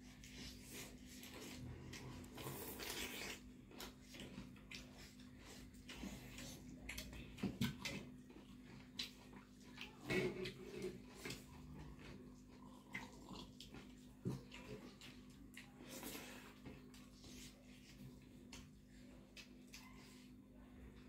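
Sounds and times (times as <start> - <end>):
chewing and lip-smacking: 0.0 - 20.4.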